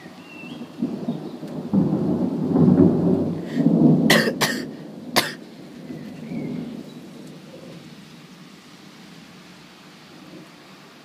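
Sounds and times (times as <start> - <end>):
thunder rumbling: 0.0 - 10.5
sharp thunder cracks: 0.5 - 7.2.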